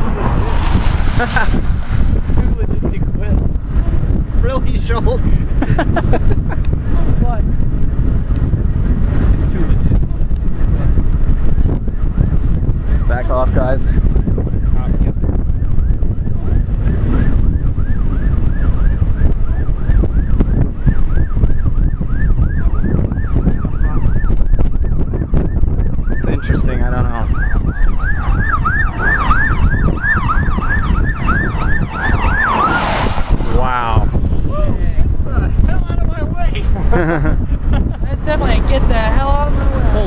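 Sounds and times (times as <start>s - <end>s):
wind buffeting microphone: 0.0s - 40.0s
emergency siren yelping: 15.5s - 34.4s.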